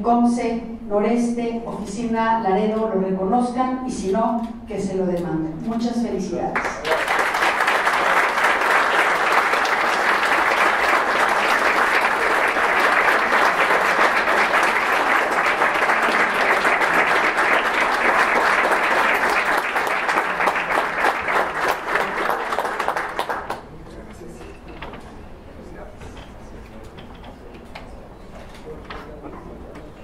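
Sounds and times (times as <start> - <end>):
audience applauding: 6.6 - 23.7.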